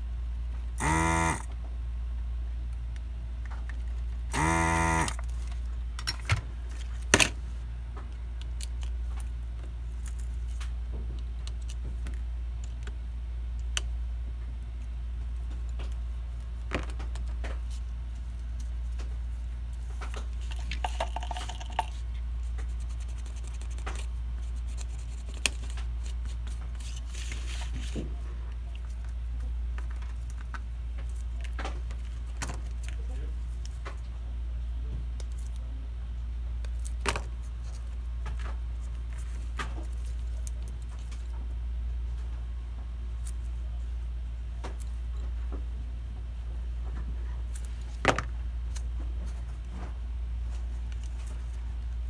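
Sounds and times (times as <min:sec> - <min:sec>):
desoldering pump buzzing: 0:00.8 - 0:01.7, 0:04.2 - 0:05.6.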